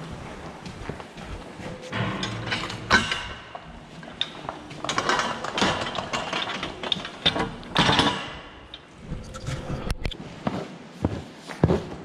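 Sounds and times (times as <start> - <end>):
metal gate clanking and rattling: 1.7 - 9.7.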